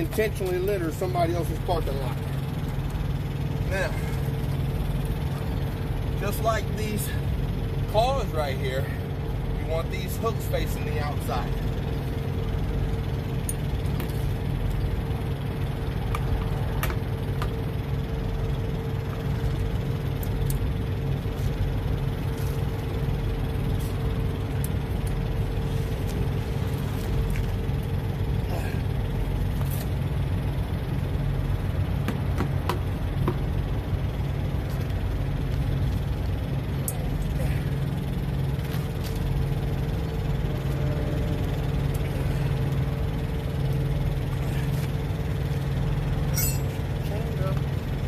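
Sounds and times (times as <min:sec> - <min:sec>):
diesel engine idling: 0:00.0 - 0:48.0
high steady tone: 0:46.2 - 0:46.9.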